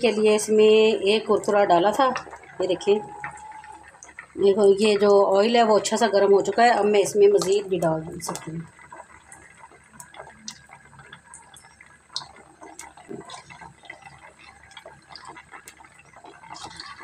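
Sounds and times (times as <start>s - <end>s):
oil popping and crackling: 0.0s - 17.0s
snack sizzling in hot oil: 0.0s - 17.0s.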